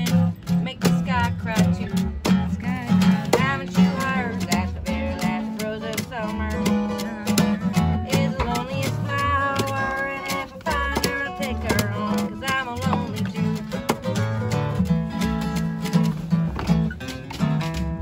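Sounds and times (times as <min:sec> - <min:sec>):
woman singing: 0:00.0 - 0:14.2
acoustic guitars strummed: 0:00.0 - 0:18.0.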